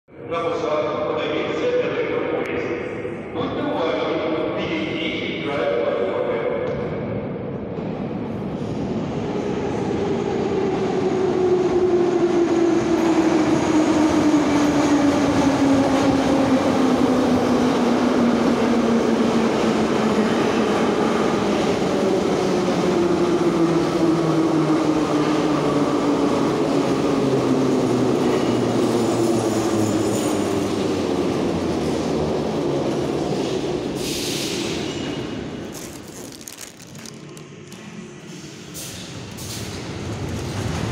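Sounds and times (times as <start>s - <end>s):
train wheels rumbling on rails: 36.9s - 40.9s.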